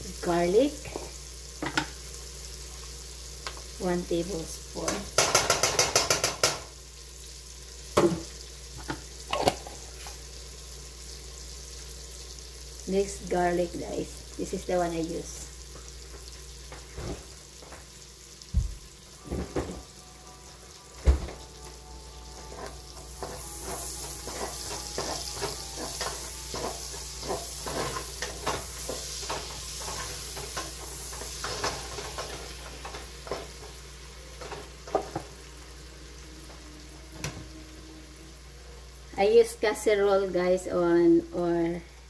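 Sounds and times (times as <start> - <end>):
onions sizzling in butter: 0.0 - 42.0
knocks against pan: 5.2 - 6.7
spatula scraping pan: 22.5 - 33.4.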